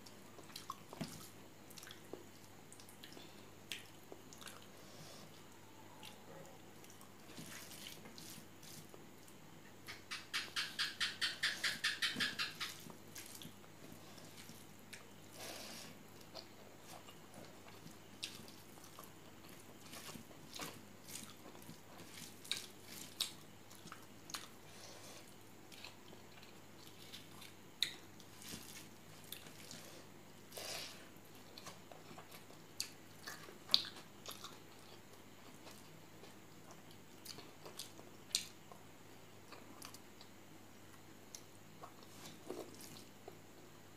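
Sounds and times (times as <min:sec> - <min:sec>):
chewing: 0:00.4 - 0:09.4, 0:16.2 - 0:30.0, 0:31.3 - 0:38.8
fingers squishing rice and curry: 0:16.2 - 0:24.6.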